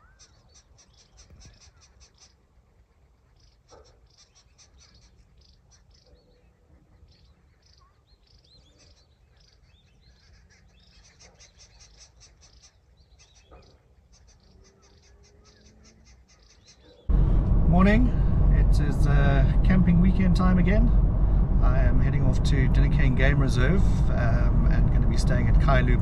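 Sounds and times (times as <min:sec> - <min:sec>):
birds chirping: 0:00.0 - 0:17.2
low steady rumble: 0:17.1 - 0:26.0.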